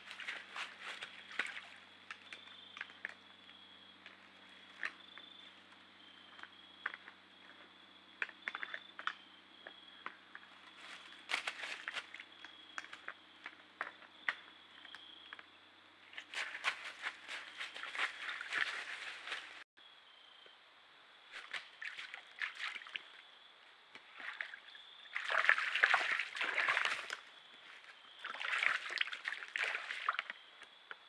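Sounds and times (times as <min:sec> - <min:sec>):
deer moving in dry leaves: 0:00.0 - 0:01.7, 0:10.6 - 0:12.3, 0:16.1 - 0:19.7.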